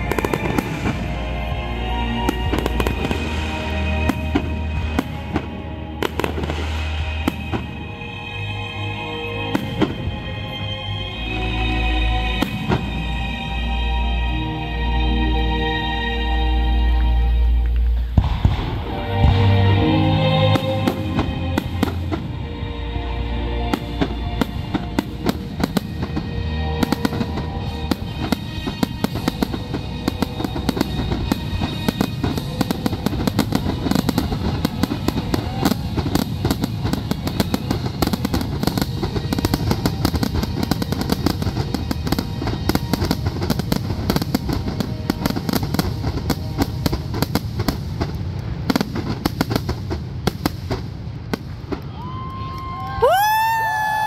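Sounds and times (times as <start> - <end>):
fireworks bursting: 0.0 - 8.5, 9.4 - 10.8, 12.3 - 13.4, 17.6 - 22.8, 23.6 - 54.0.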